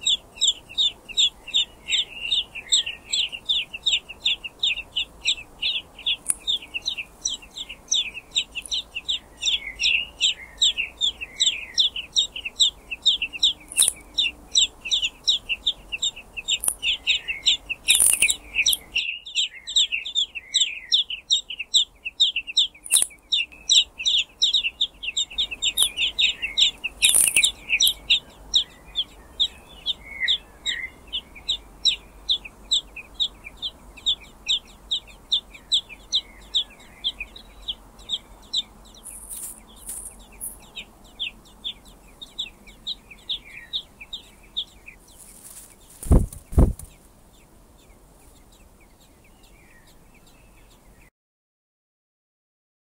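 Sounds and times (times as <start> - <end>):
nestlings begging chirps: 0.0 - 51.1
sharp clicks: 13.7 - 14.0, 22.9 - 23.6.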